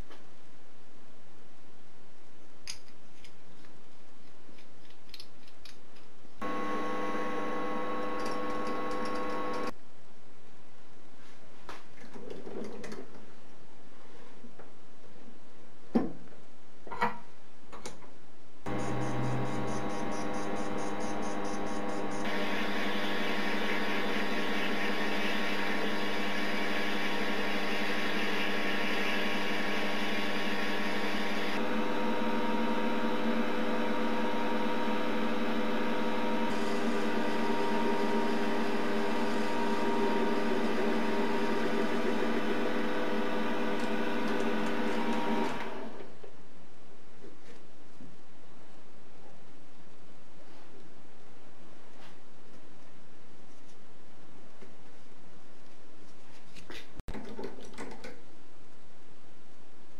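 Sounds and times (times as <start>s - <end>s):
lathe motor whine: 6.4s - 9.7s, 18.7s - 46.0s.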